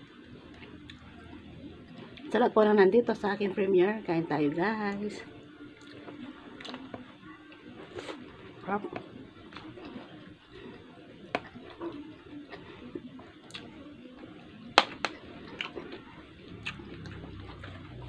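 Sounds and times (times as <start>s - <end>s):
person chewing: 9.4s - 13.8s, 14.8s - 18.0s.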